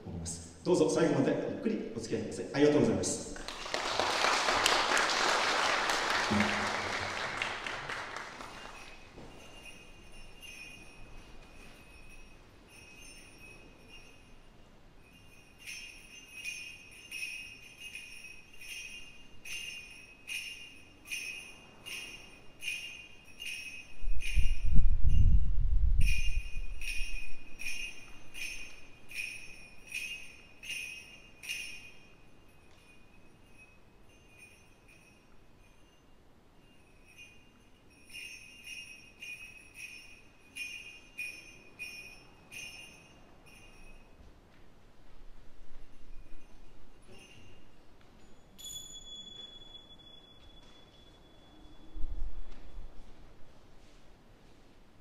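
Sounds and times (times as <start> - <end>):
bells shaken: 2.8 - 44.3, 45.6 - 52.4
audience applause: 3.4 - 9.0
high ringing tones: 6.3 - 44.3, 45.8 - 52.4.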